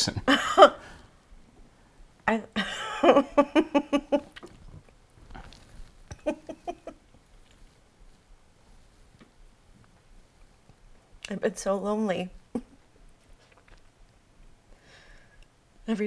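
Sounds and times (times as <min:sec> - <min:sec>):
man laughing: 0:06.1 - 0:07.0.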